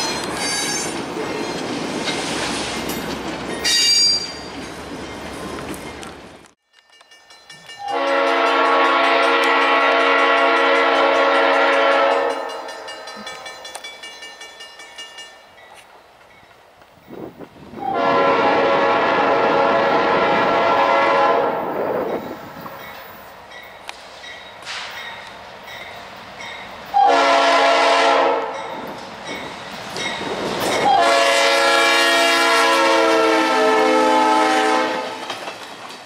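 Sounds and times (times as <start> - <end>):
train rumble: 0.0 - 36.0
locomotive air horn blasts: 7.8 - 12.8, 17.8 - 21.8, 26.9 - 28.6, 30.8 - 35.2.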